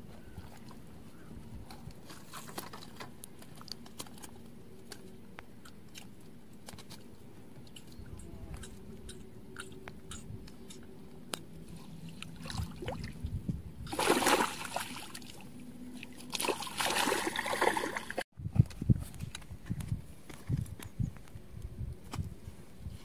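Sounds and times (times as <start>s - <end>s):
water splashing in shallows: 11.8s - 18.2s.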